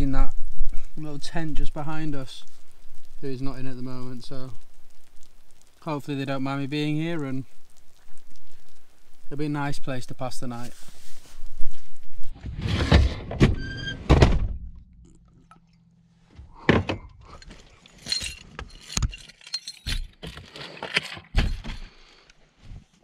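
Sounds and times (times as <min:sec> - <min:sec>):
knocks and rustling: 0:11.6 - 0:14.8, 0:16.2 - 0:22.0
van door squealing and shutting: 0:12.5 - 0:14.6.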